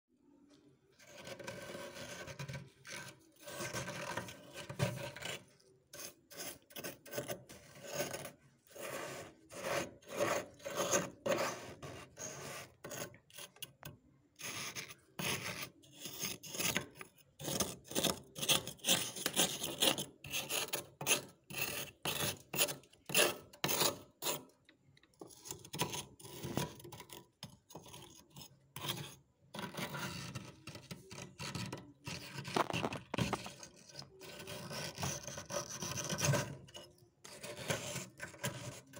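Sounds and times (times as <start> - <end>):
gritty scraping of frost: 1.0 - 13.6, 31.6 - 38.8.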